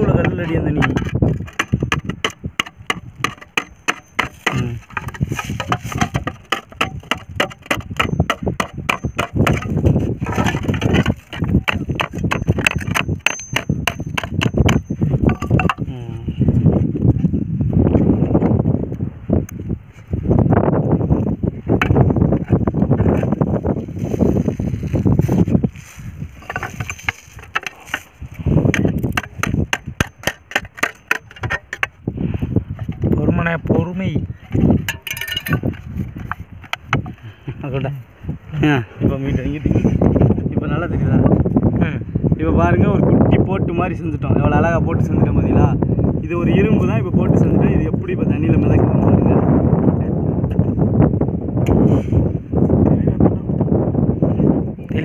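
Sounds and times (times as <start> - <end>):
hammer tapping tin sheet: 0.2 - 9.8, 10.4 - 15.8.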